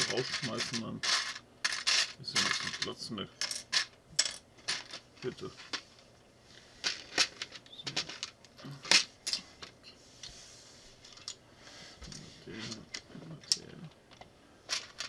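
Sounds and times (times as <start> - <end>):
plastic bricks clicking and rattling: 6.8 - 9.4.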